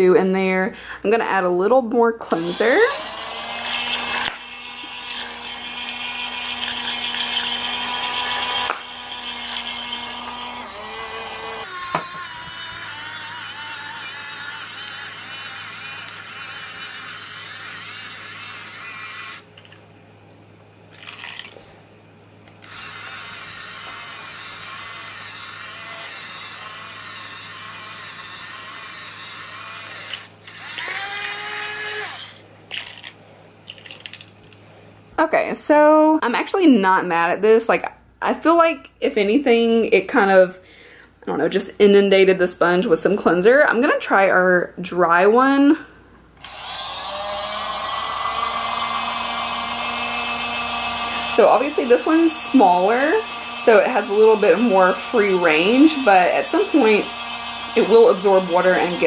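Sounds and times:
small electric motor whining: 2.3s - 19.8s, 22.6s - 32.4s, 46.4s - 59.0s.

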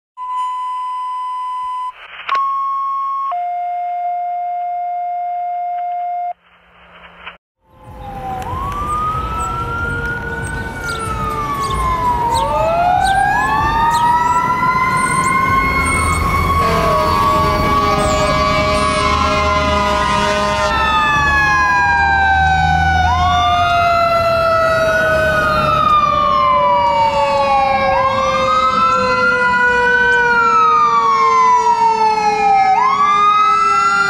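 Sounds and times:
fire engine siren wailing: 2.3s - 6.3s, 7.6s - 34.0s
low traffic rumble: 6.4s - 34.0s.

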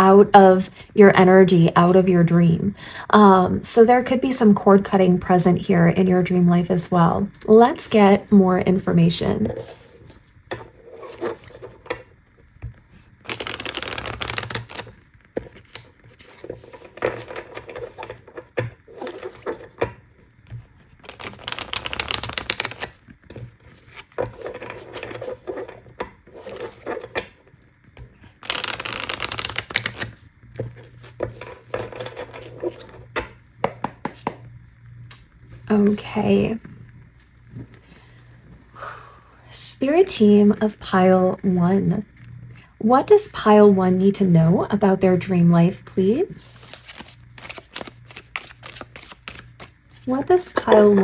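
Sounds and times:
cards being shuffled: 9.4s - 11.8s, 12.7s - 19.9s, 20.5s - 27.2s, 28.0s - 33.1s, 46.6s - 51.0s
card clicks and slides: 46.6s - 49.7s.

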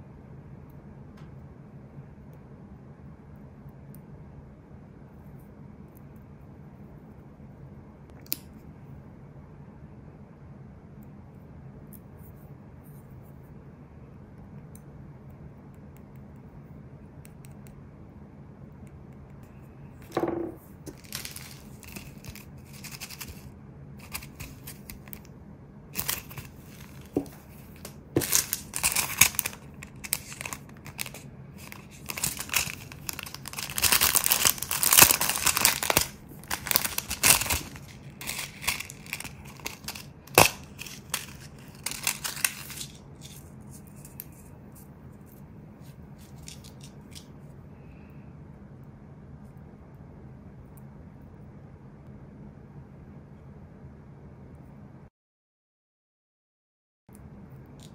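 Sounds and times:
packaging crinkling and rustling: 20.9s - 25.3s, 26.0s - 44.4s, 46.2s - 47.3s.

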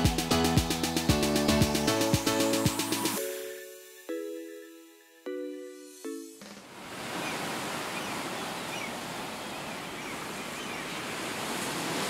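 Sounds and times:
background music chords: 0.0s - 6.7s
ocean surf: 6.6s - 12.0s.

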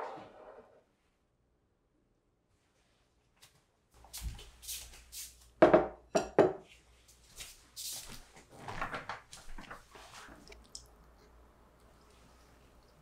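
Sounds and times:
soft footsteps: 2.8s - 5.6s, 6.6s - 10.7s
glass clunking on desk: 5.6s - 6.6s.

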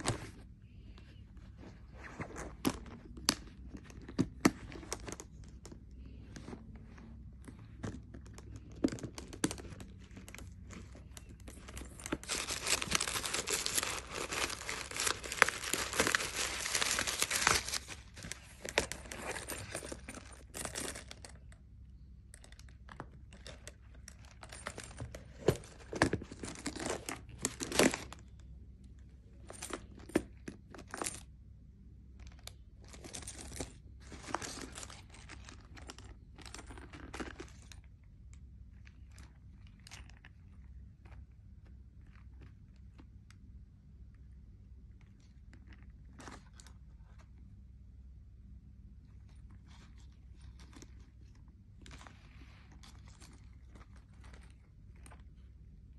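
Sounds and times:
handbag rustling and crinkling: 1.3s - 21.4s, 32.8s - 38.0s, 49.1s - 55.7s.

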